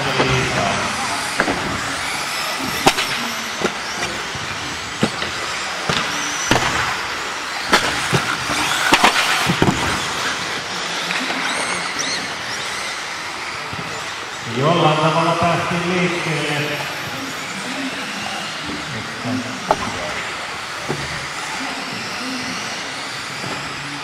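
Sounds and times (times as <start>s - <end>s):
electric motors whining: 0.0s - 24.0s.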